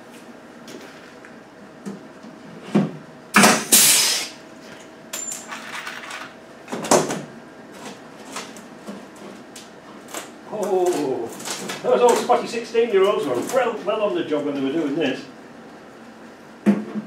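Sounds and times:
air hiss: 3.7 - 4.4.

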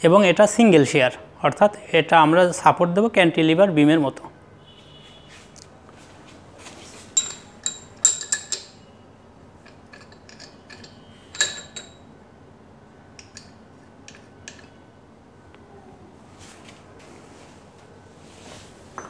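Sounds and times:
steel rod clinking against metal tool: 7.2 - 8.8, 9.7 - 12.1.

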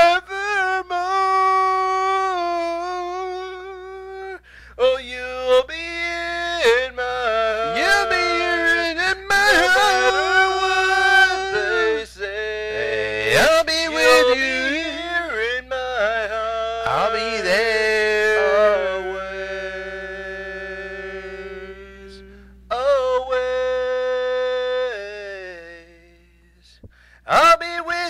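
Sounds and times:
man singing unaccompanied: 0.0 - 28.0.

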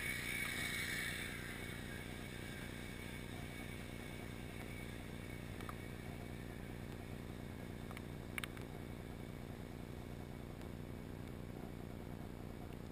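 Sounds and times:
low underwater noise: 0.0 - 12.9
faint clicks: 7.8 - 8.8.

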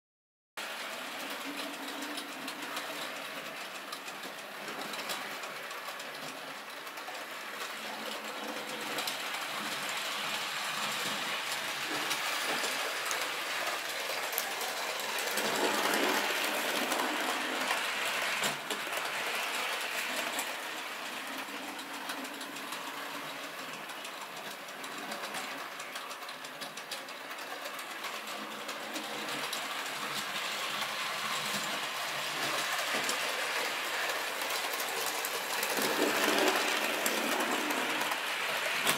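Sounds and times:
train wheels rolling on rails: 0.6 - 38.9
model train motor whirring: 25.2 - 38.9.

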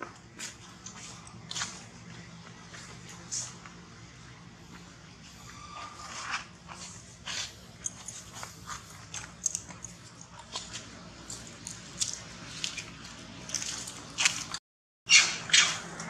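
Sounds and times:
monkeys clicking and squeaking: 5.4 - 16.0.

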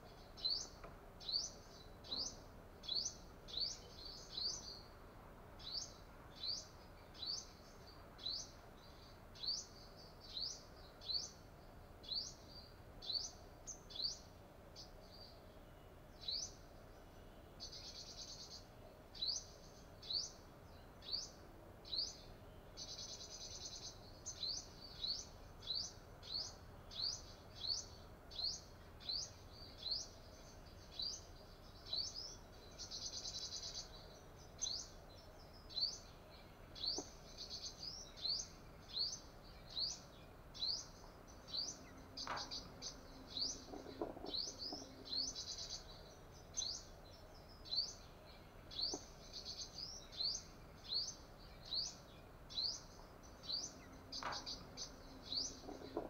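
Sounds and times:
bird chirping: 0.0 - 56.0.

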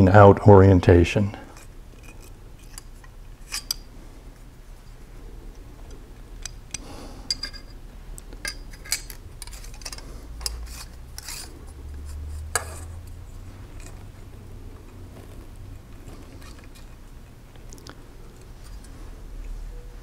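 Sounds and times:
metal rule scraping: 8.5 - 14.1.

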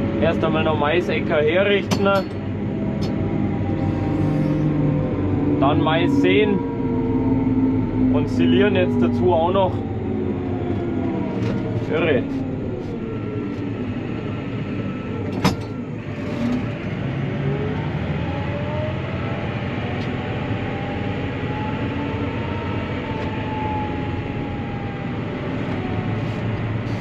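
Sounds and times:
tractor engine running: 0.0 - 18.4
engine whine rising and falling: 0.0 - 27.0.

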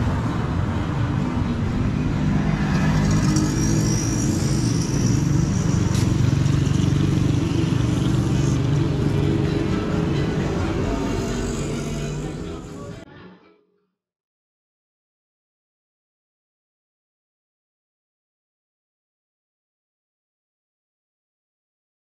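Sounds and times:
motorcycle passing: 0.0 - 13.0
vehicles driving past: 0.0 - 13.0
music playing: 7.7 - 13.8.

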